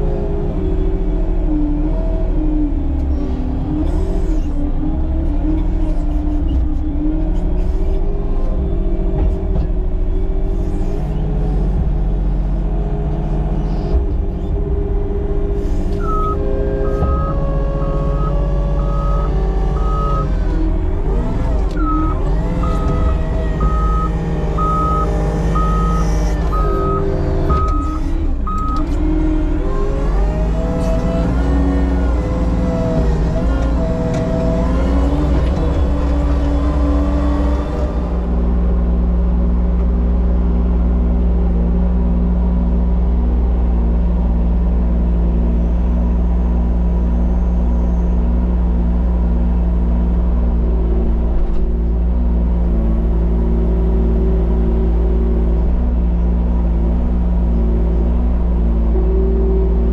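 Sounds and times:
diesel engine running under load: 0.0s - 59.9s
reversing alarm beeping: 16.0s - 20.3s, 21.8s - 28.9s.

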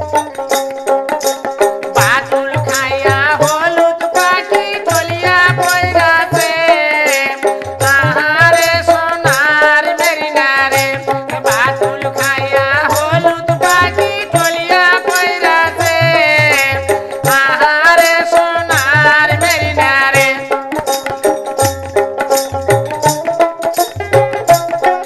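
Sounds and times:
sharp percussive clicks: 0.0s - 25.0s
low hand drum beat: 10.4s - 25.0s.

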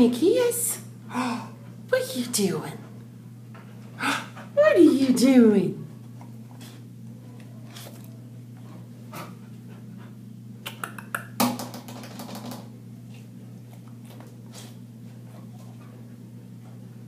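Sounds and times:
steady low hum: 0.0s - 17.0s
dog claws clicking on tile: 10.6s - 12.7s.

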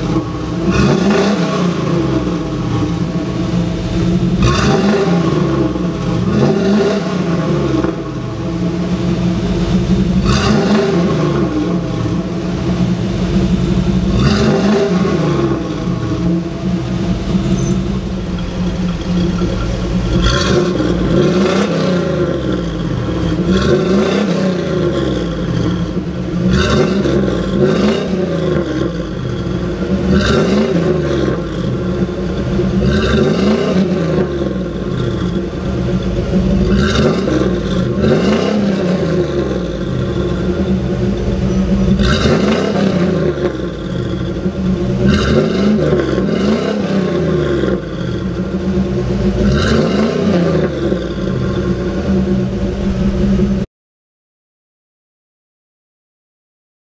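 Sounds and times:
truck engine revving: 0.0s - 53.7s.

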